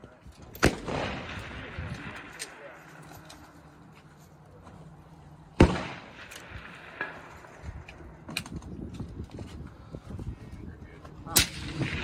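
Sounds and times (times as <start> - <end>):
rifle shot: 0.5 - 2.7, 5.6 - 7.6, 11.3 - 12.0.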